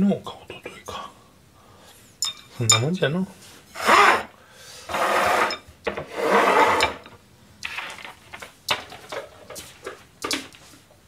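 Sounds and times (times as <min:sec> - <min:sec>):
bowls scraping on steel counter: 0:04.9 - 0:08.1
dishes knocking: 0:05.4 - 0:07.2.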